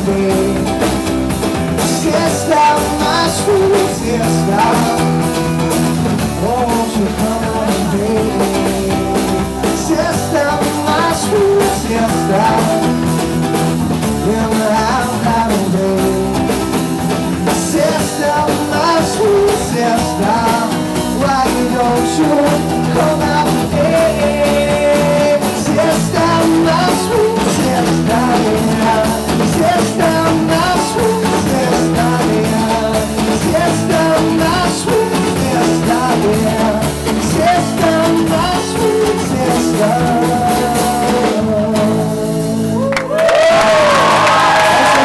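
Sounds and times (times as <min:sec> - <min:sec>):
man singing: 0:00.0 - 0:42.9, 0:43.7 - 0:45.0
rock guitar: 0:00.0 - 0:45.0
audience applause and cheering: 0:42.8 - 0:45.0.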